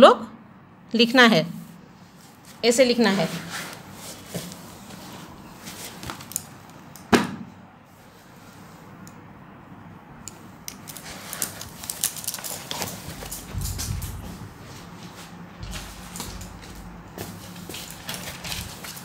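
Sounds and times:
low rumbling: 0:13.4 - 0:14.8.

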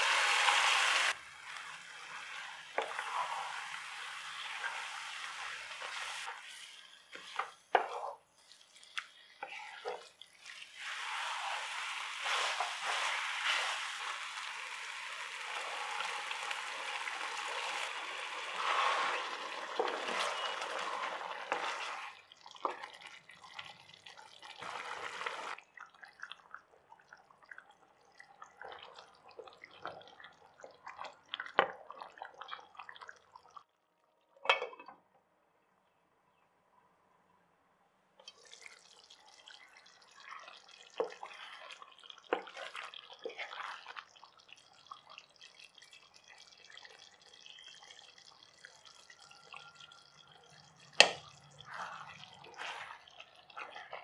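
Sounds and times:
chicken sizzling in oil: 0:00.0 - 0:07.4, 0:10.2 - 0:25.6
wooden spatula scraping pan: 0:18.6 - 0:22.2, 0:51.7 - 0:54.0
gravy bubbling with soft pops: 0:21.5 - 0:24.8, 0:25.5 - 0:33.7, 0:38.2 - 0:54.0.

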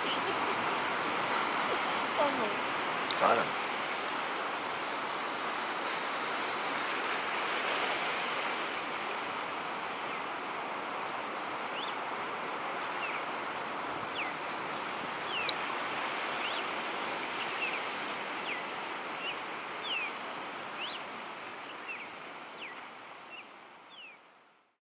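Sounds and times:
ocean surf breaking: 0:00.0 - 0:19.6.

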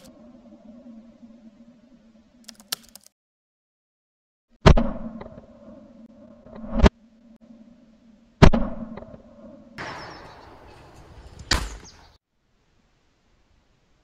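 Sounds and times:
outdoor background hiss: 0:10.2 - 0:14.0.

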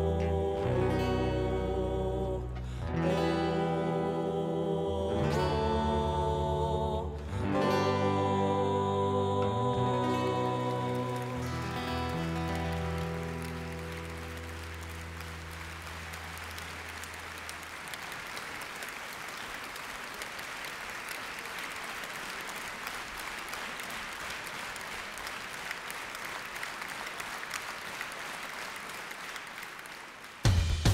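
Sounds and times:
low music chord: 0:00.0 - 0:17.1
crowd applauding: 0:09.8 - 0:30.9.

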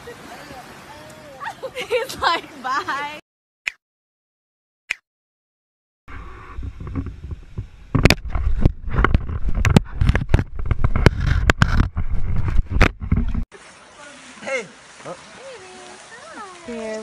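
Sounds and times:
camera handling rumble: 0:06.6 - 0:13.4.

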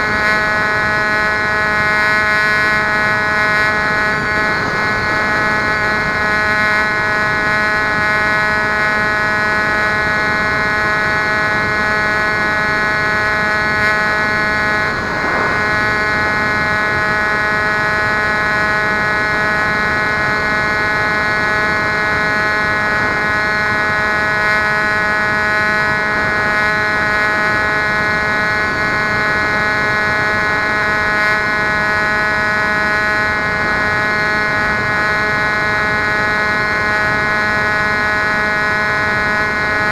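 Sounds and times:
electric motor and propeller whining: 0:00.0 - 0:39.9
rushing air: 0:14.1 - 0:17.6.

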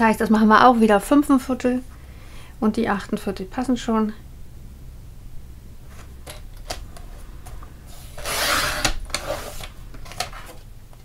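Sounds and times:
trimmer blade scraping along rail: 0:07.9 - 0:09.7.

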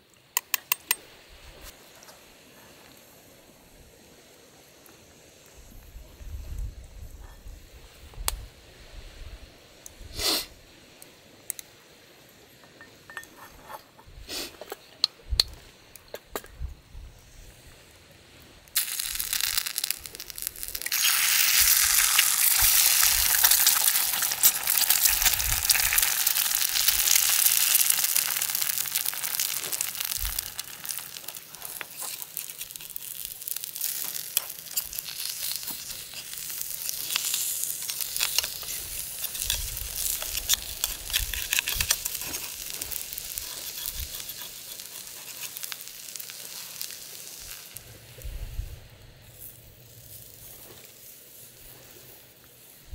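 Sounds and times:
egg sizzling in a pan: 0:18.7 - 0:47.8.

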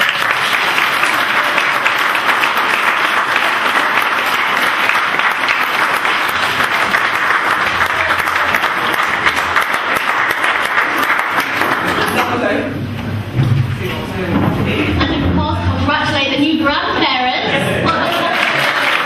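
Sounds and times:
audience applauding: 0:00.0 - 0:12.5, 0:17.8 - 0:19.0.

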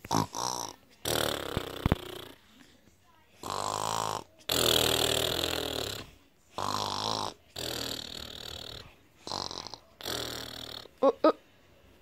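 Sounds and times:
person snoring: 0:03.4 - 0:10.9.

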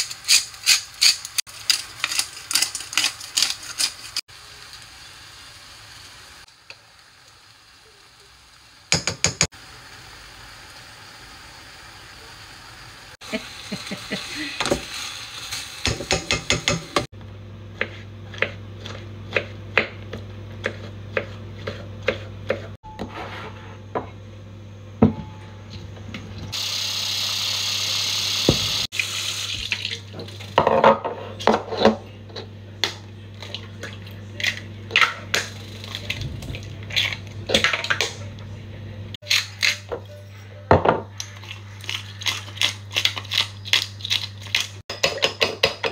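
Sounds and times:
tap water running into pan: 0:08.8 - 0:11.7.

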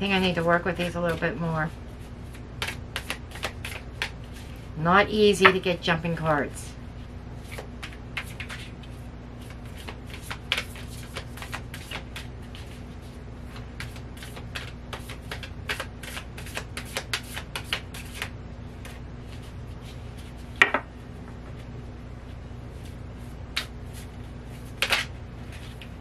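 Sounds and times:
cards being shuffled: 0:02.0 - 0:04.6, 0:07.4 - 0:12.9, 0:13.5 - 0:20.5, 0:22.8 - 0:26.0.

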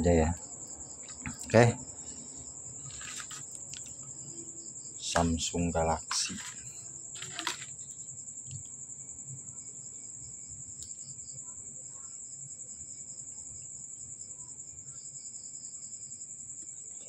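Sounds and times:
high-pitched insect trill: 0:00.0 - 0:17.0.

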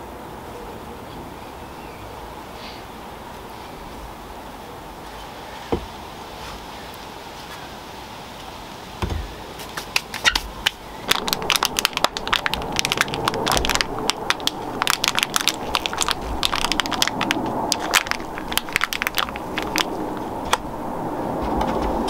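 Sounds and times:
soil crunching: 0:09.2 - 0:20.8
plastic tray crackling: 0:09.6 - 0:20.7.

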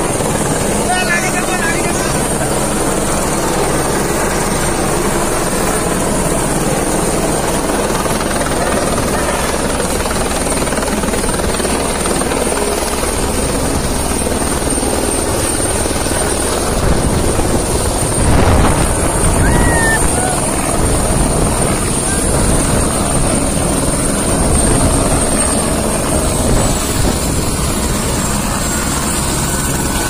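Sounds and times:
helicopter rotor and engine: 0:00.0 - 0:30.0
high whine: 0:16.6 - 0:22.3.

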